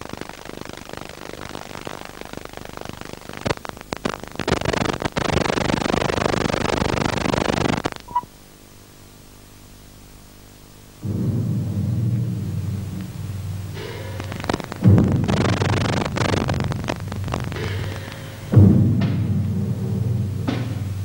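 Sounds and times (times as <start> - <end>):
low hum: 0.0 - 21.0
tape static hiss and crackle: 0.0 - 21.0
loud low sound: 11.0 - 20.3.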